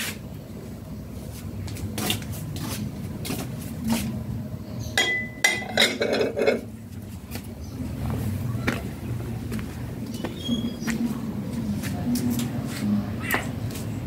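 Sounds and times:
low steady hum: 0:00.1 - 0:14.0.

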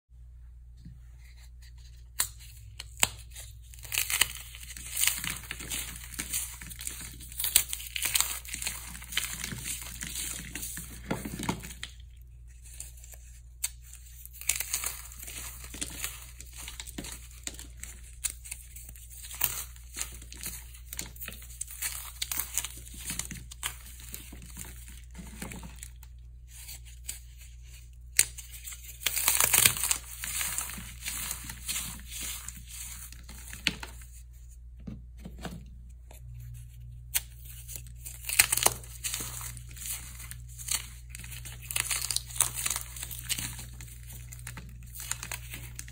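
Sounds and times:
dry foam crunching and crumbling: 0:03.7 - 0:12.0, 0:14.2 - 0:26.0, 0:28.8 - 0:34.2, 0:37.5 - 0:45.9.

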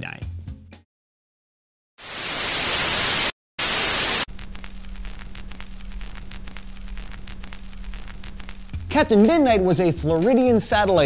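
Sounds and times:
tv static hiss: 0:02.0 - 0:08.9
steady low hum: 0:04.3 - 0:08.9.

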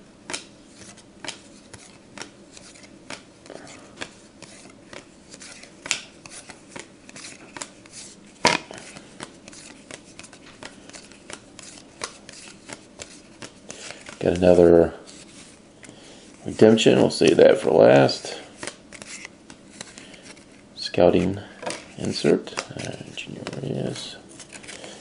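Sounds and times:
trading cards snapping: 0:00.3 - 0:03.2.

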